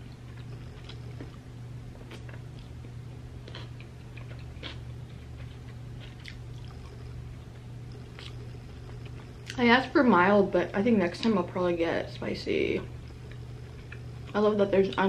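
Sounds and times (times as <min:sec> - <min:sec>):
low steady hum: 0:00.0 - 0:15.0
person chewing: 0:00.1 - 0:09.6, 0:13.0 - 0:15.0.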